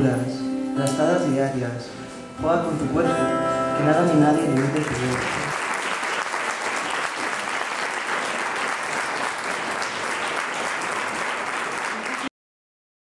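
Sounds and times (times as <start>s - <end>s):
audience applauding: 4.5s - 12.3s.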